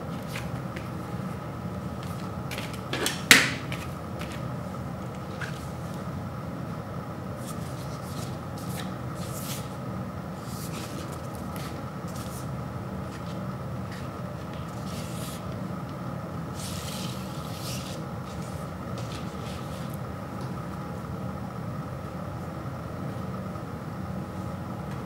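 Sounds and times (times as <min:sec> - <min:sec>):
paper sleeve rustling: 0:07.4 - 0:09.8, 0:10.4 - 0:15.6, 0:16.5 - 0:20.0.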